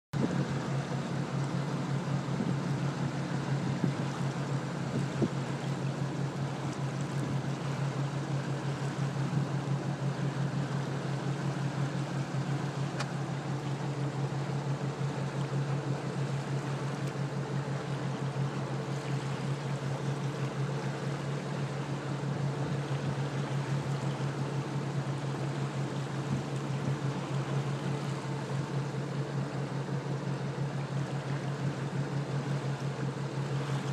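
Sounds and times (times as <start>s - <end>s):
boat motor humming: 0.1s - 33.9s
water noise: 0.1s - 33.9s.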